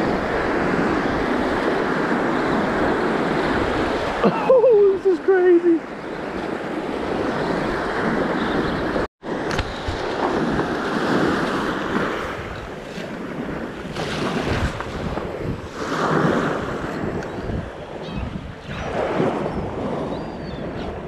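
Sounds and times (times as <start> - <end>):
surf washing and breaking: 0.0 - 21.0
wind buffeting microphone: 6.1 - 21.0.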